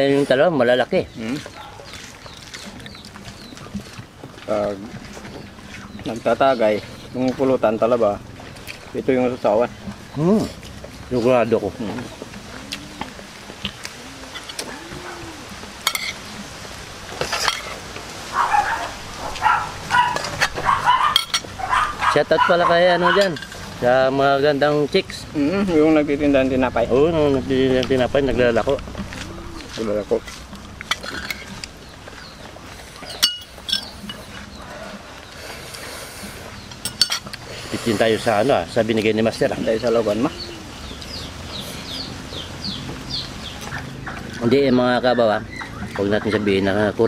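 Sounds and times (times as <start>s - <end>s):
people chewing and lip-smacking: 0.1s - 23.8s, 27.3s - 47.0s
cutlery clinking on plate: 15.8s - 16.2s, 20.0s - 21.6s, 33.0s - 34.3s, 36.8s - 37.4s.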